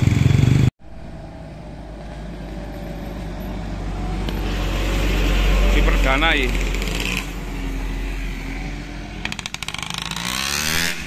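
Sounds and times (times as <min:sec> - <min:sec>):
diesel truck engine labouring uphill: 0:00.0 - 0:10.4
loud engine: 0:00.0 - 0:11.0.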